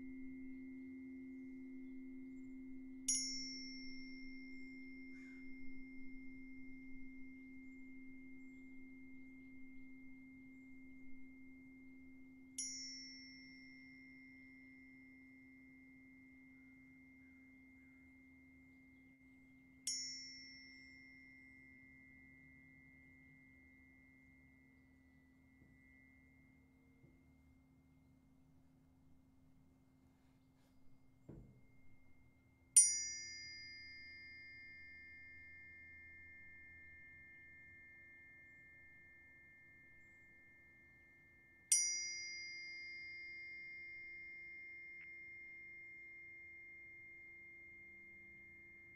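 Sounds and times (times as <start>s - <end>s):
tuning forks ringing: 0.0s - 28.2s, 31.3s - 48.9s
lower steady tone: 0.0s - 48.9s
soft bump: 30.6s - 31.7s.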